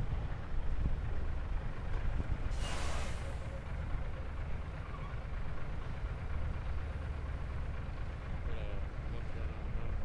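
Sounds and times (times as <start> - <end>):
diesel engine rumbling: 0.0 - 10.0
short hiss burst: 2.5 - 3.4.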